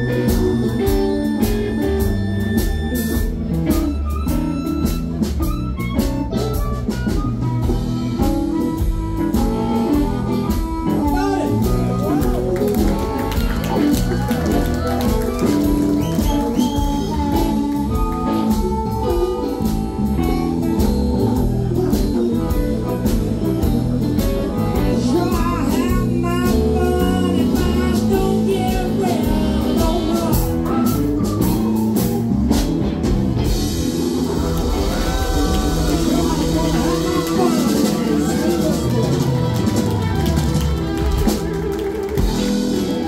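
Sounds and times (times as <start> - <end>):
harmonica: 0.0 - 26.4
bass guitar: 0.0 - 43.0
drums: 0.0 - 43.0
electric guitar: 0.0 - 43.0
man singing: 24.5 - 31.0.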